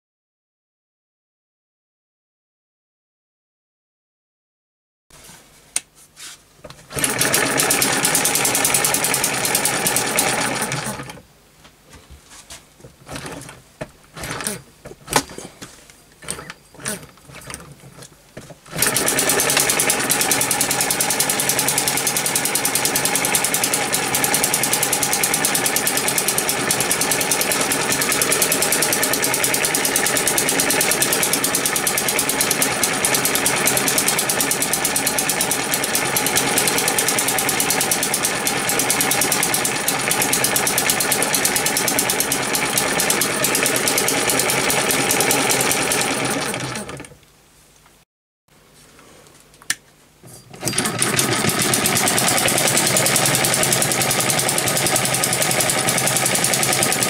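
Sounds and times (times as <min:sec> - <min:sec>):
model gas engine running: 0:07.0 - 0:11.1, 0:18.7 - 0:47.1, 0:50.6 - 0:57.0.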